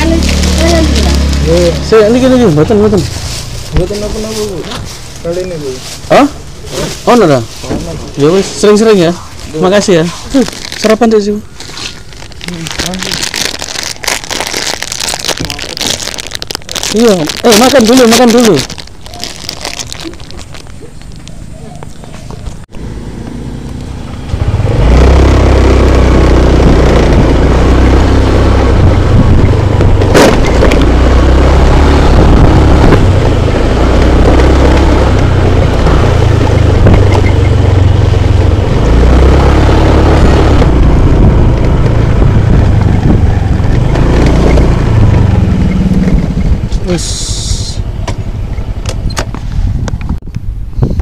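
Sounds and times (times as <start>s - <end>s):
scooter engine: 0.0s - 6.7s, 19.7s - 46.7s
wind buffeting microphone: 28.6s - 47.0s, 47.8s - 51.0s.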